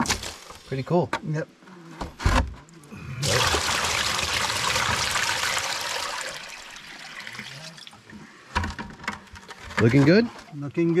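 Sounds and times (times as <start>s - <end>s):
water pouring and splashing: 3.2s - 8.2s.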